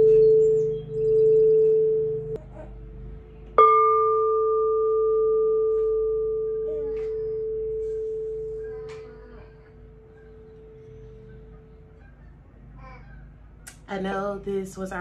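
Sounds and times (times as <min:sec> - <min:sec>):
singing bowl ringing: 0:03.6 - 0:11.2.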